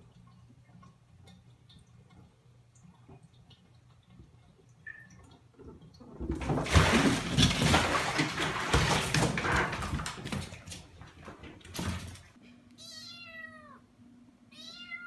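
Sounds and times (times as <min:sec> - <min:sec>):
cat splashing in water: 0:04.8 - 0:12.3
cat falling into bathtub: 0:06.2 - 0:12.3.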